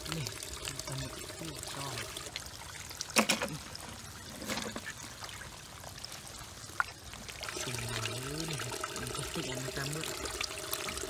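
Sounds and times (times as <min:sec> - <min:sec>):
low voice: 0:00.0 - 0:02.1, 0:07.6 - 0:10.1
small clicks and splashes: 0:00.0 - 0:11.0
water trickling and pouring: 0:00.0 - 0:11.0.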